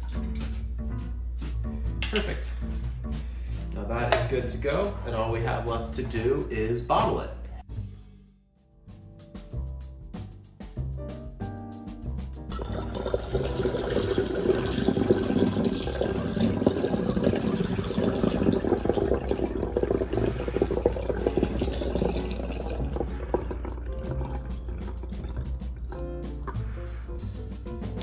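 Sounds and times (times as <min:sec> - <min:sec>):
background music: 0:00.0 - 0:28.0
liquid pouring into a bottle: 0:12.5 - 0:26.6.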